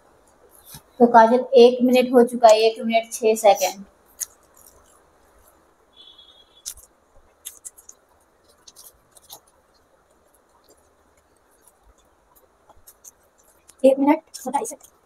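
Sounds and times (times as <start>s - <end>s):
wet mouth clicks and chewing: 4.2s - 5.0s, 6.6s - 15.0s.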